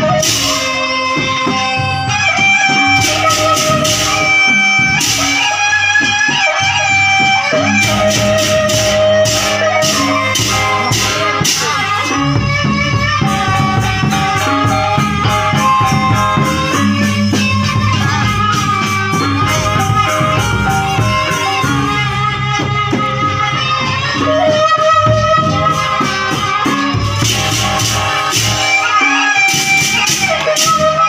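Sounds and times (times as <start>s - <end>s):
barrel drums beating: 0.0s - 23.7s, 24.6s - 31.0s
bamboo flute melody: 0.0s - 31.0s
gamelan playing: 2.0s - 22.6s, 26.8s - 31.0s.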